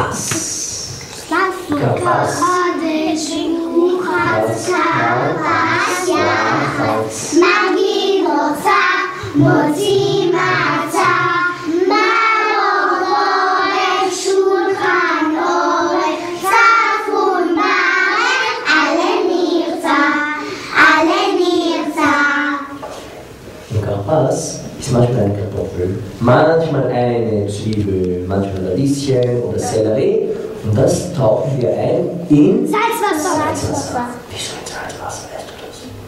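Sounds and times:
children singing: 0:01.6 - 0:23.0.

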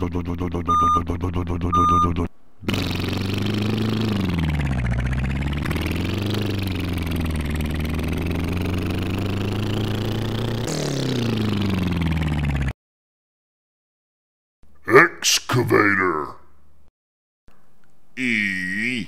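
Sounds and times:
heavy machinery engine running: 0:01.7 - 0:12.7.

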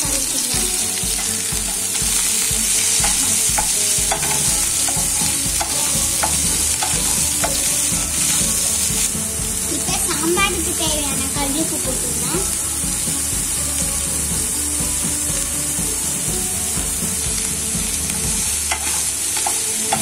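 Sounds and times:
onions sizzling in hot oil: 0:00.0 - 0:20.0
spatula scraping pan: 0:00.1 - 0:10.8, 0:17.8 - 0:20.0.

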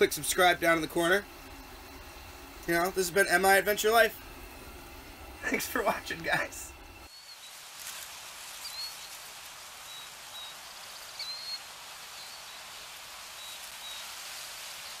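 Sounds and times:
steady rushing hiss: 0:00.0 - 0:15.0
high bird chirps: 0:07.0 - 0:07.6, 0:08.6 - 0:14.2.

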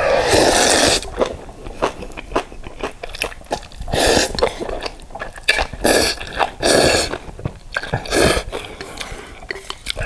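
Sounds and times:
noodle slurp: 0:00.0 - 0:01.2
wet chewing and mouth clicks: 0:00.6 - 0:10.0.

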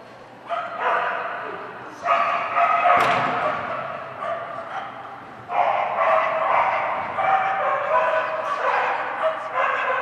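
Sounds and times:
dog yapping and barking: 0:02.1 - 0:10.0.

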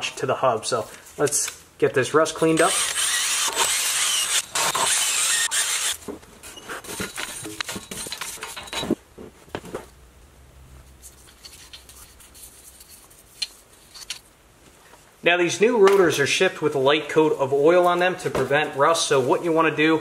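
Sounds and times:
brush scratching and rubbing: 0:10.8 - 0:14.1.

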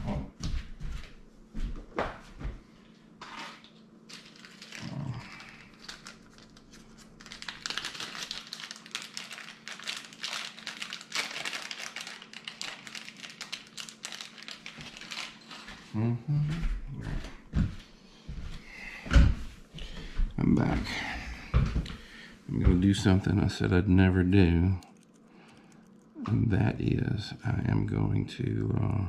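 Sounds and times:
rummaging rustling and crinkling: 0:03.3 - 0:15.8.

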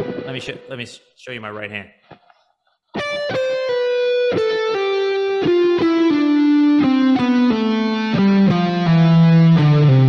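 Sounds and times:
electric guitar descending line: 0:00.0 - 0:00.8, 0:03.0 - 0:10.0.

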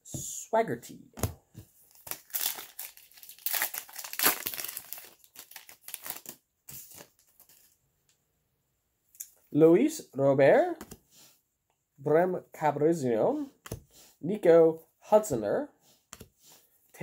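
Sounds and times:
foil wrapper tearing and crinkling: 0:01.9 - 0:07.6.

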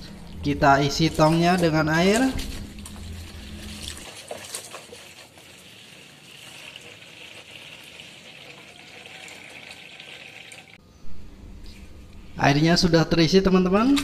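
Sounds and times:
hose water splashing into drum: 0:02.3 - 0:10.8.

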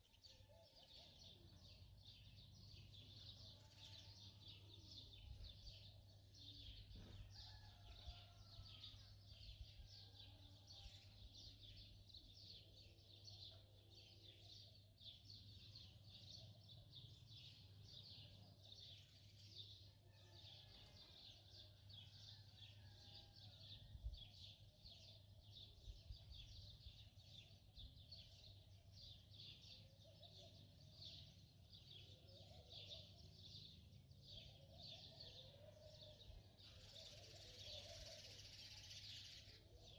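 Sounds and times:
faint birds chirping: 0:00.0 - 0:39.9.

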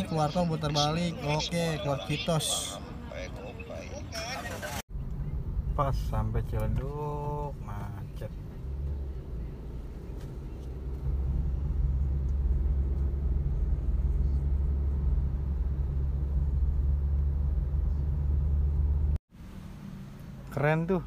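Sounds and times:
car engine and tyres rumbling: 0:00.0 - 0:21.0.

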